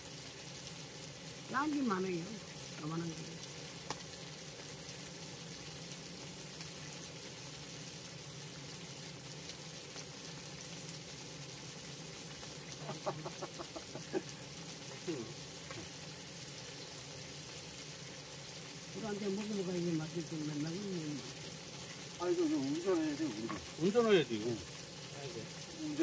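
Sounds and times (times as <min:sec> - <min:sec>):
frying sizzle: 0:00.0 - 0:26.0
chicken clucking: 0:12.8 - 0:14.1.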